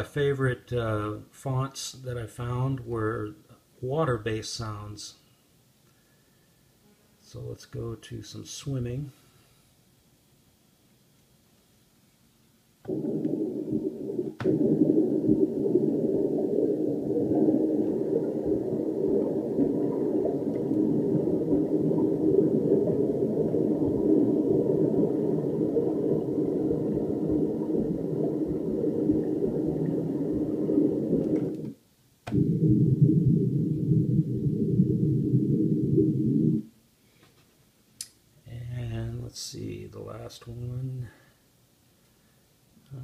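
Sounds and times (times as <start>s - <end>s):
muffled water sloshing: 12.9s - 31.7s.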